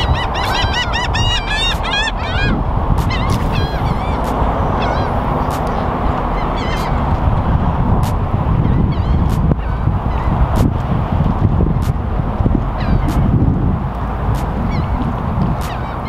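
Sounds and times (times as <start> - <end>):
birds squawking: 0.0 - 7.2, 12.8 - 13.3, 14.7 - 16.0
steady low rumble: 0.0 - 16.0.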